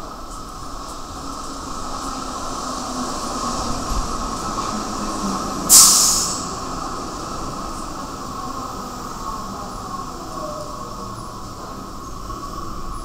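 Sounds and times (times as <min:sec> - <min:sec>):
train running along platform: 0:00.0 - 0:13.0
loud hiss of air: 0:05.6 - 0:07.3.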